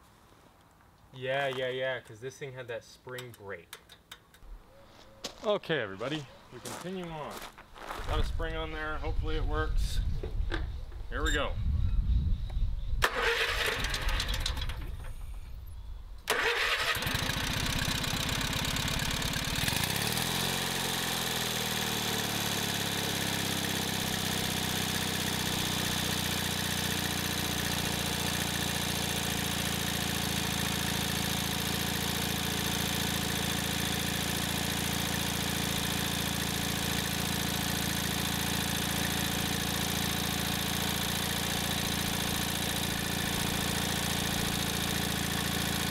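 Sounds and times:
engine starter cranking: 13.0 - 15.1, 16.3 - 20.2
tractor engine running: 13.1 - 15.4, 16.3 - 45.9.

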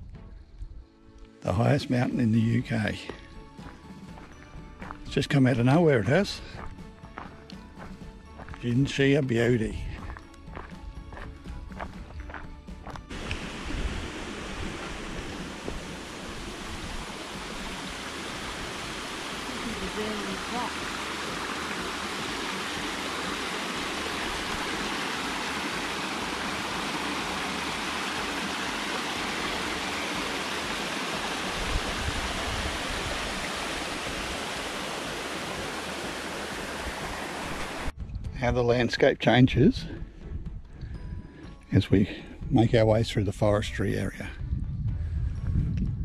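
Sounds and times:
stream rushing over stones: 13.1 - 37.9.

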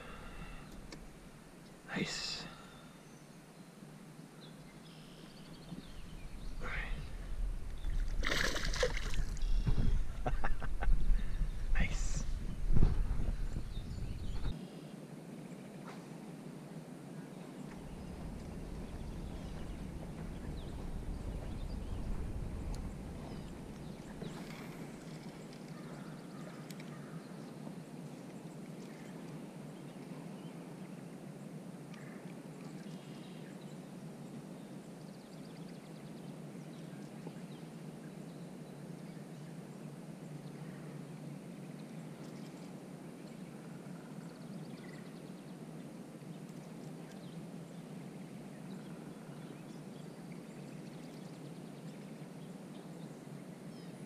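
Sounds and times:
outdoor background rush: 0.0 - 32.9.

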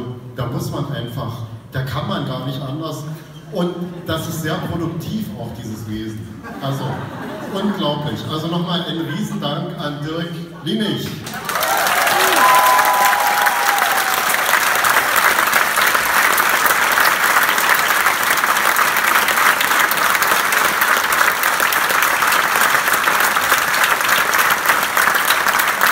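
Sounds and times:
crowd applauding: 11.2 - 25.9.

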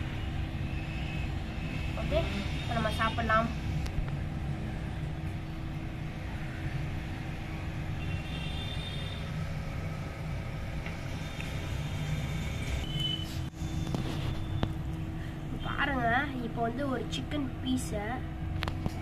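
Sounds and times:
faint hum: 0.0 - 19.0.

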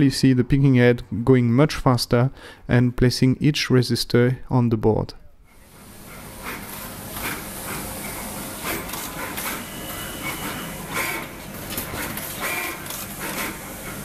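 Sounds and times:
machine hum: 5.5 - 14.0
sharp bursts of machine noise: 5.6 - 14.0.

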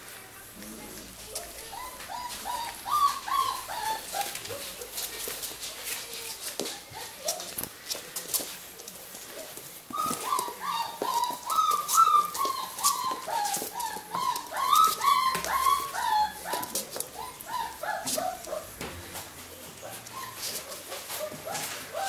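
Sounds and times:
puppies whining and yipping: 1.3 - 5.2, 9.9 - 18.8, 19.6 - 22.0.

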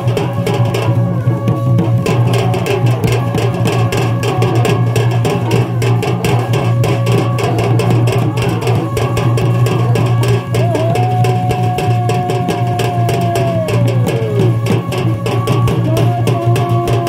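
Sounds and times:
fast steady drumming: 0.0 - 17.0
melody with long held note: 5.2 - 17.0.

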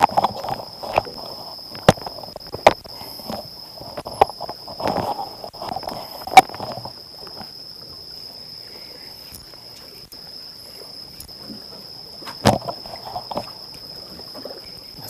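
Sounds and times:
crickets trilling: 0.0 - 15.0
water sloshing: 9.2 - 15.0.

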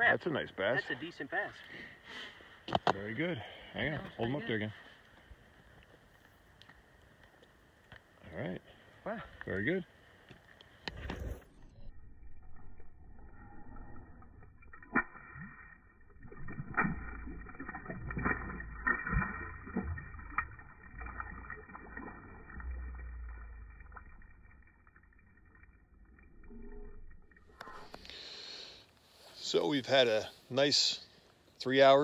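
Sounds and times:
water splashing and sloshing: 10.2 - 28.4
low rumble: 10.9 - 28.1.

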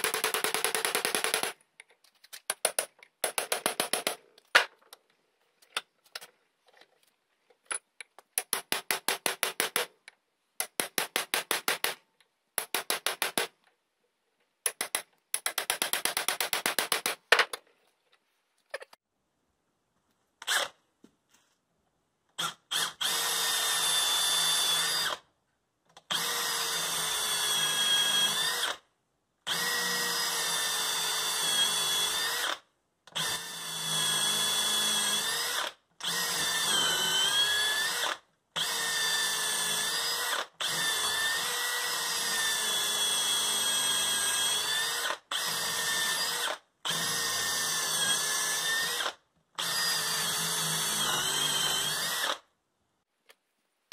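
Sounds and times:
cordless drill whining: 22.4 - 25.2, 26.1 - 28.8, 29.5 - 32.6, 33.2 - 52.4.

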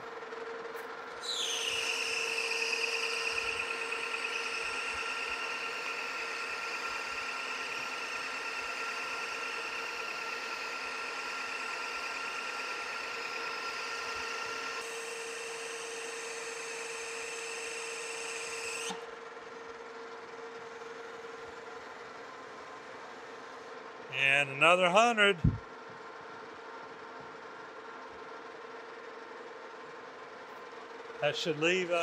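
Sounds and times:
metal lathe cutting: 1.3 - 19.0.

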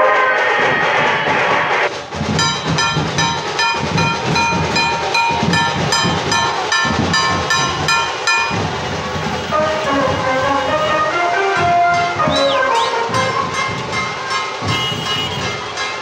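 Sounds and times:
muffled song: 0.0 - 16.0
heavy low beat: 0.9 - 16.0
rapid repeated horn-like note: 9.2 - 15.9.

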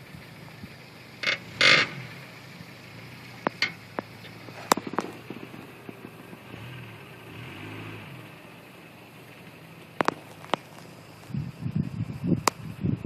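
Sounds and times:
engine running low: 0.0 - 13.0
sharp cracks: 3.4 - 6.8, 9.8 - 11.3.

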